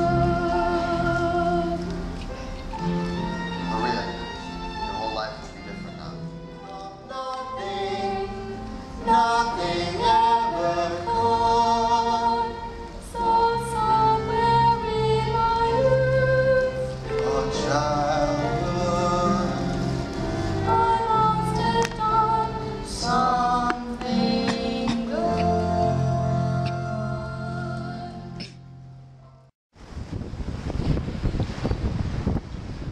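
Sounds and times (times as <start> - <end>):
woman singing with vibrato: 0.0 - 1.9, 9.0 - 17.1, 20.6 - 28.4
instrumental accompaniment: 0.0 - 29.5
man singing with vibrato: 9.0 - 13.7, 15.9 - 20.1.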